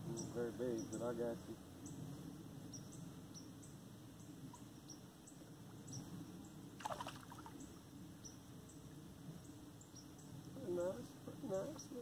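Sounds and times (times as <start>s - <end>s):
faint evening ambience: 0.0s - 12.0s
fish splashing at water surface: 6.8s - 7.6s.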